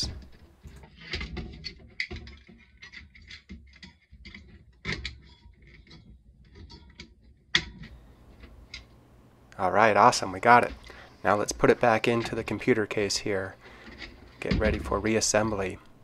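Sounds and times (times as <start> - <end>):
rustling: 9.7 - 16.0.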